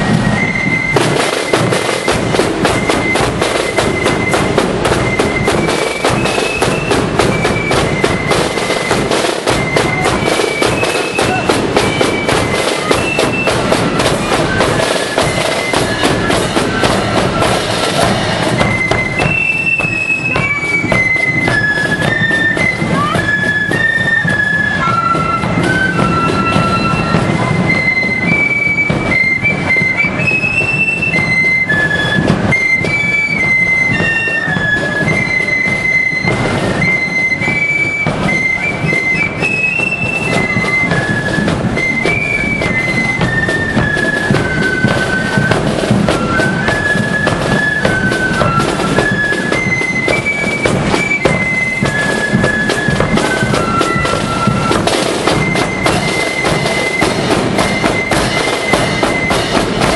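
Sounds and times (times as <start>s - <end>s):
flutes playing melody: 0.0s - 59.9s
rapid side drum beating: 0.0s - 59.9s.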